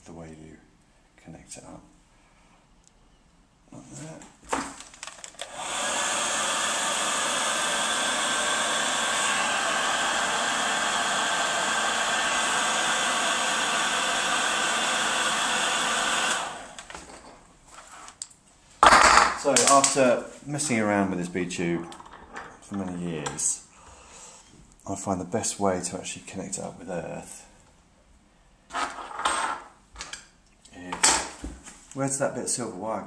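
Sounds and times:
heat gun blowing air: 0:05.3 - 0:16.9.

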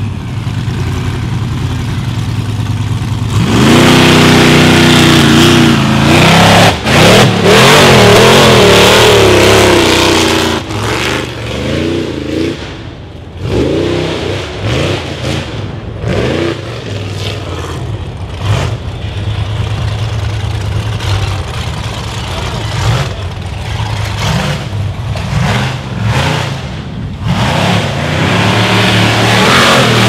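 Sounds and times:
engine revving hard: 0:03.3 - 0:12.6, 0:13.4 - 0:17.5, 0:22.5 - 0:30.0.

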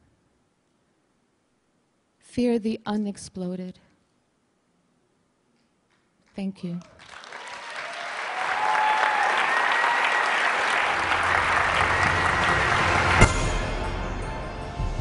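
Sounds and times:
audience applause: 0:06.8 - 0:13.8
low hum: 0:10.9 - 0:15.0.

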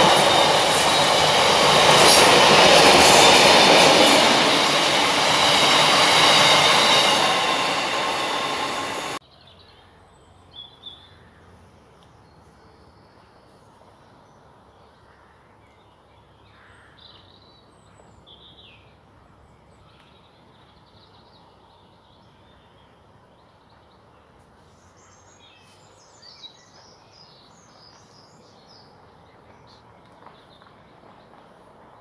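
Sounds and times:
outdoor background hiss: 0:09.2 - 0:29.4.

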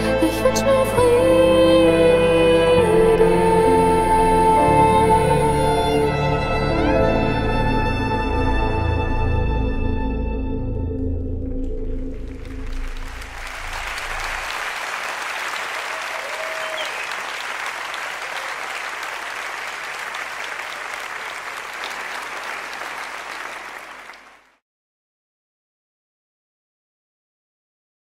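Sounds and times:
ensemble low note: 0:10.2 - 0:14.4
audience applauding: 0:11.8 - 0:24.6.

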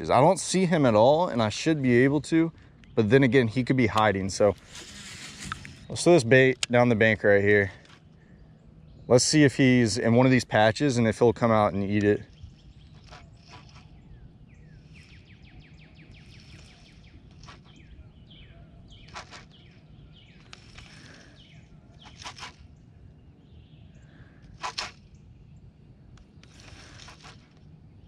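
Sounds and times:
short bird chirps: 0:12.2 - 0:25.6.

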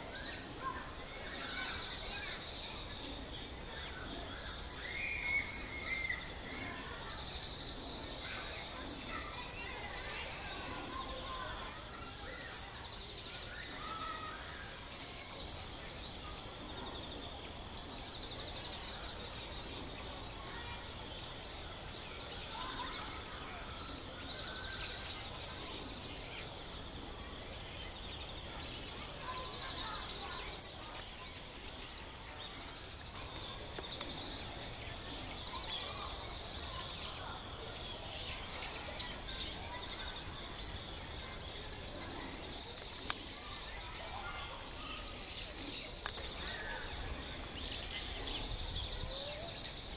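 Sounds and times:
faint lower bird calls: 0:00.0 - 0:20.9.

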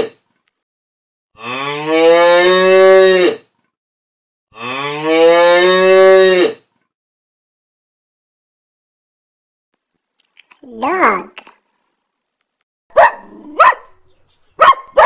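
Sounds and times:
cow mooing: 0:01.4 - 0:03.4, 0:04.5 - 0:06.6.

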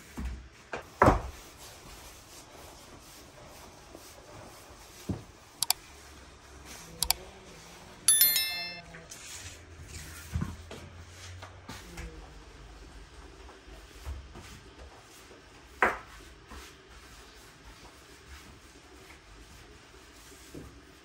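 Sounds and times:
bright bell chime: 0:08.1 - 0:08.8.

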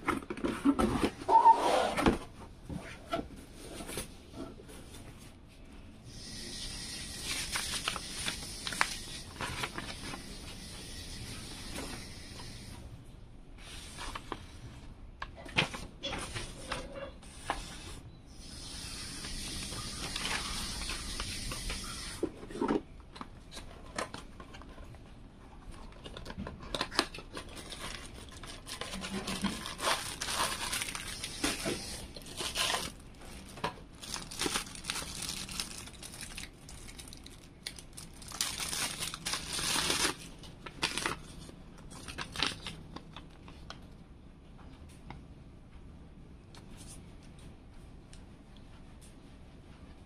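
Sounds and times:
packaging rustling and sliding: 0:07.2 - 0:10.6, 0:19.3 - 0:22.8, 0:26.1 - 0:42.8.

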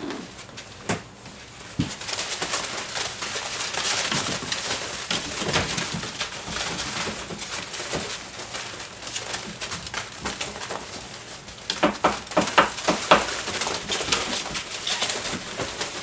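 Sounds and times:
puppies play-growling and yipping: 0:00.0 - 0:00.9
paws scratching through wood shavings: 0:00.0 - 0:16.0.

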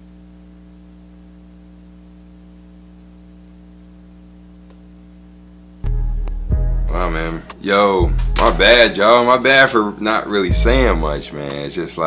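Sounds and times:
electrical mains hum: 0:00.0 - 0:12.0
faint click: 0:04.6 - 0:04.9.

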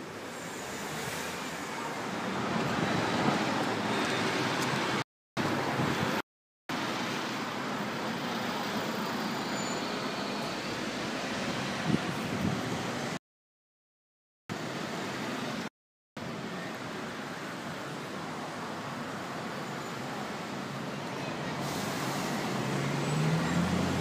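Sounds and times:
passing cars rushing: 0:21.4 - 0:24.0.

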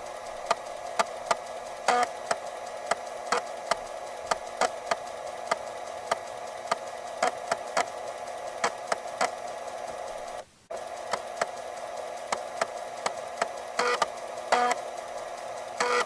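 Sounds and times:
floppy drive motor hum: 0:00.0 - 0:16.0.

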